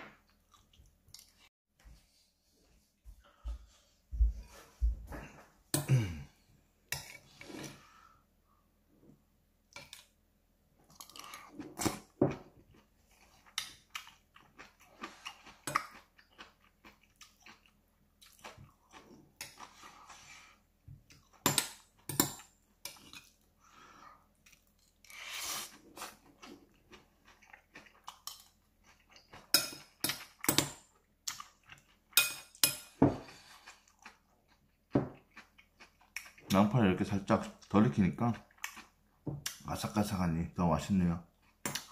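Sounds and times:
close chewing of food: 10.8 - 20.2, 24.2 - 39.7.

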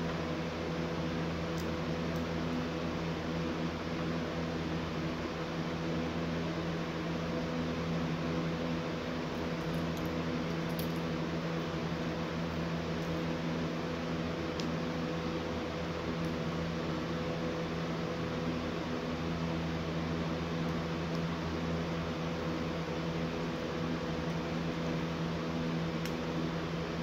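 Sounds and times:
steady mechanical hum: 0.0 - 27.0.

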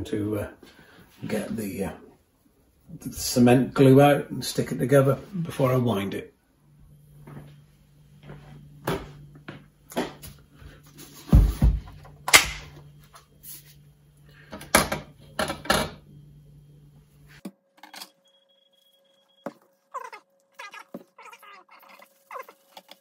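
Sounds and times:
low steady hum: 0.0 - 23.0
powder being shaken: 21.0 - 23.0.

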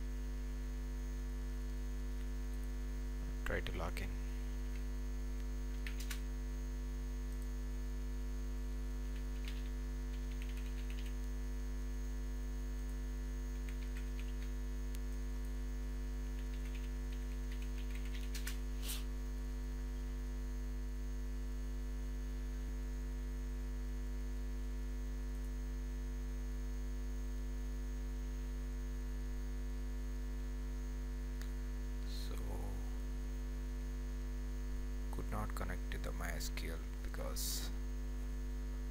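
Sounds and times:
electrical mains hum: 0.0 - 38.9
keyboard typing and clicks: 5.7 - 6.2, 9.1 - 11.3, 13.5 - 14.6, 16.3 - 18.6.

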